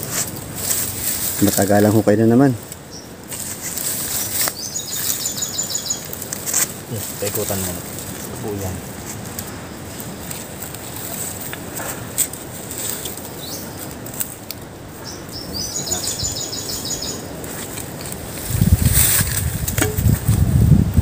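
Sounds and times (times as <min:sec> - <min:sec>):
hands scratching dry soil: 0:00.0 - 0:21.0
bird trilling: 0:04.1 - 0:06.2, 0:15.0 - 0:17.7.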